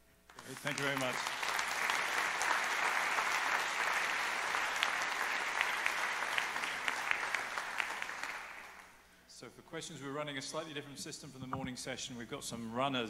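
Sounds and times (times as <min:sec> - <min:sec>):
audience applauding: 0:00.3 - 0:08.9.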